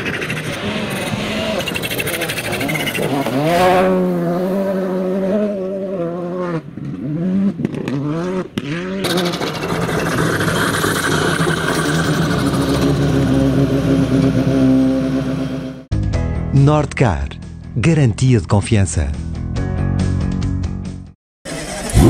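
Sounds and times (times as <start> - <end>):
rally car engine at full throttle: 0.0 - 15.9, 21.5 - 22.0.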